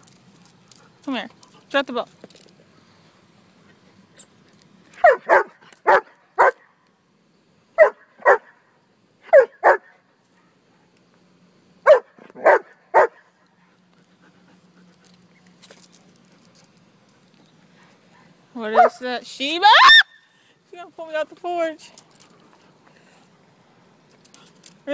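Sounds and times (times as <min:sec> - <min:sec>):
dog barking: 0:05.0 - 0:06.6, 0:07.8 - 0:08.5, 0:09.3 - 0:09.9, 0:11.9 - 0:13.2.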